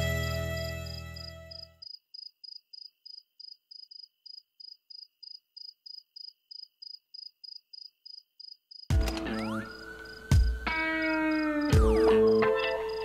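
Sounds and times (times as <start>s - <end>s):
music: 0.0s - 1.7s, 8.9s - 13.0s
cricket-like chirping: 0.5s - 13.0s.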